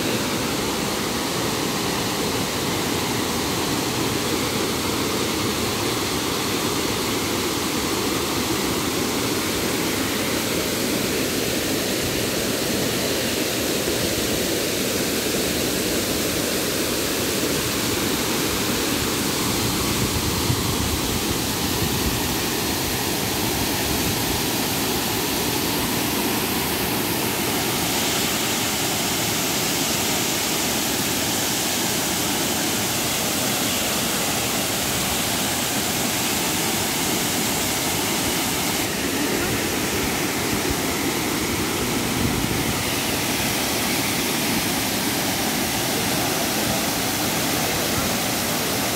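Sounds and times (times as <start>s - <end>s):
waterfall roaring: 0.0s - 48.9s.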